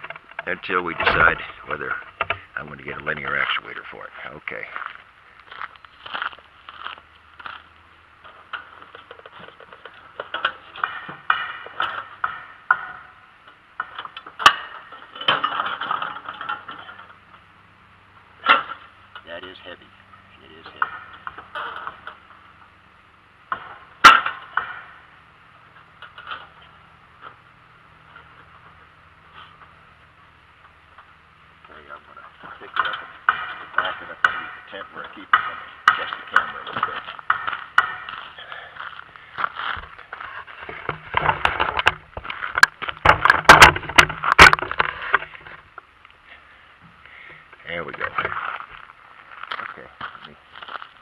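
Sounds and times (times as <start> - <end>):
metal clanks and knocks: 0.0 - 3.8, 8.2 - 17.5, 18.2 - 19.7, 20.4 - 22.8, 23.5 - 27.4, 28.0 - 45.9.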